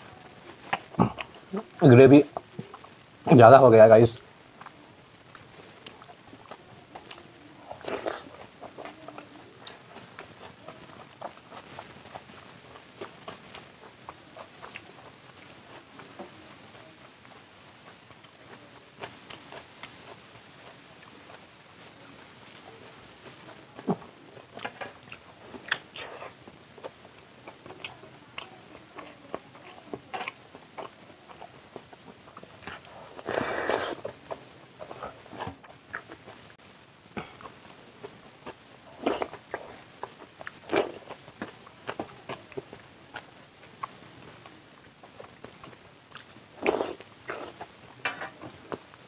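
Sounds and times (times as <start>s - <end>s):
wet chewing: 4.6s - 16.8s, 23.7s - 36.4s, 37.2s - 48.9s.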